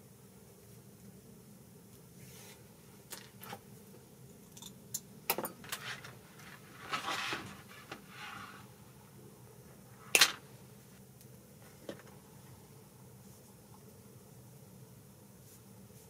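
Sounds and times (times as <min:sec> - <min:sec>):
short rustle: 0:05.6 - 0:08.8.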